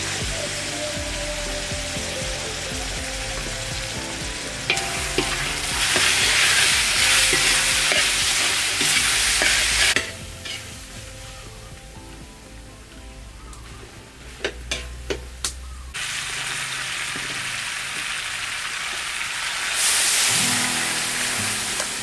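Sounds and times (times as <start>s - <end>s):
meat sizzling in a wok: 0.0s - 12.5s, 14.2s - 22.0s
spatula clinking against a pan: 4.7s - 10.7s.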